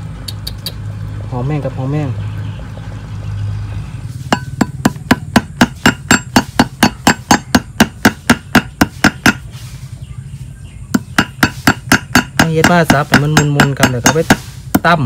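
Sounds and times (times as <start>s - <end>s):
pestle pounding in mortar: 4.3s - 9.5s, 10.9s - 15.0s.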